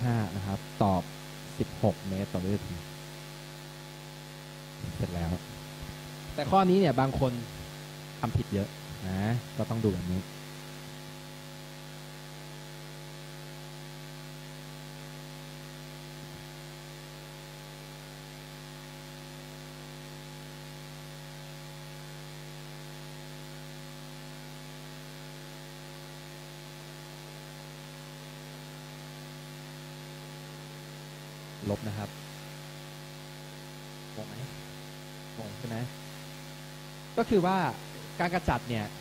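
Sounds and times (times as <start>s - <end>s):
electrical mains hum: 0.0s - 39.0s.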